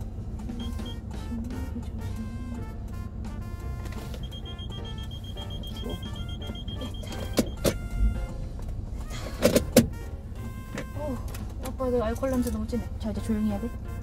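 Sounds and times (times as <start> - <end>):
background music: 0.0 - 14.0
car warning beep: 0.5 - 2.6, 3.6 - 8.4.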